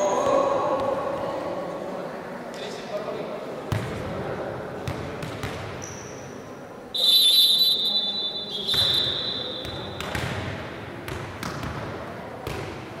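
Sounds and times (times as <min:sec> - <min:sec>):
referee's whistle long blast: 0:07.0 - 0:09.6.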